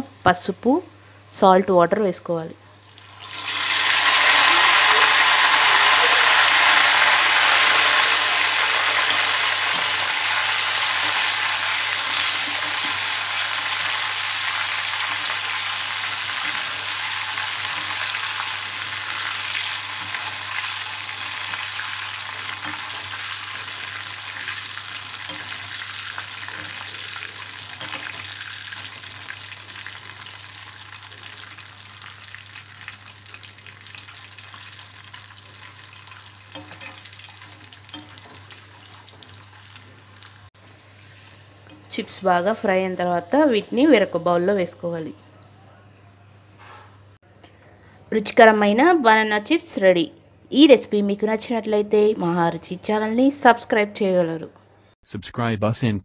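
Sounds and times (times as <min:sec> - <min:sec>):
slices sizzling in hot oil: 0:02.9 - 0:41.8
metal spoon stirring: 0:22.2 - 0:29.2, 0:35.8 - 0:39.5.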